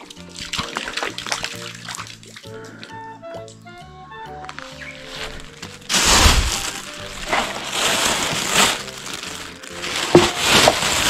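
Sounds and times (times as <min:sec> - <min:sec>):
plastic bag rustling: 0:04.5 - 0:11.0.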